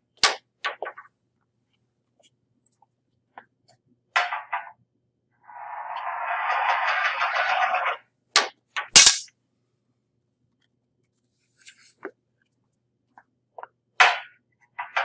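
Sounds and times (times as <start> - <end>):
ball rolling down a ramp: 5.4 - 8.1.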